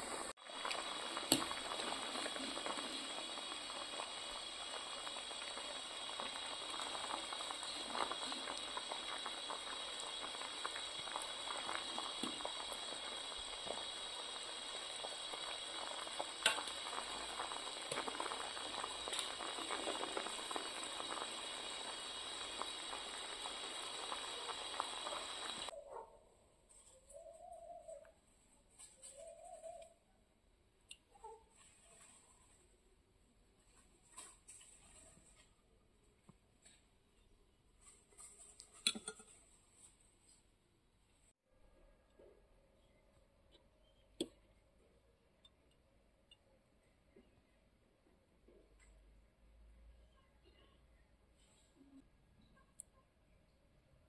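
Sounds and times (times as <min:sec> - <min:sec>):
syrup bubbling in a pot: 0:00.0 - 0:25.8.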